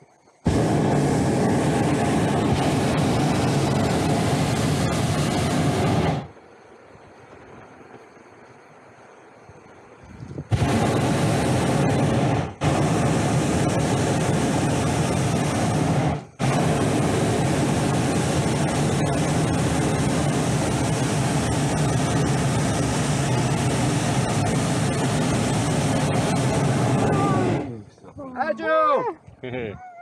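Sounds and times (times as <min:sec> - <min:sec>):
propane burner blasting: 0:00.0 - 0:06.4, 0:10.4 - 0:27.9.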